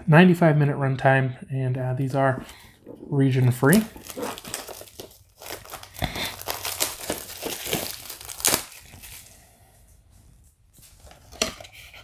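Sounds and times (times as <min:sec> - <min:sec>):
plastic wrap crinkling and tearing: 0:03.4 - 0:09.5.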